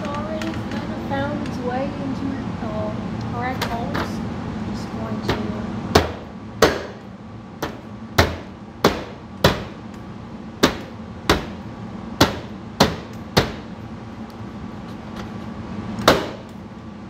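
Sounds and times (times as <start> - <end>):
fist pounding on car spoiler: 5.9 - 7.0, 7.6 - 9.8, 10.6 - 11.6, 12.2 - 13.7, 16.0 - 16.5.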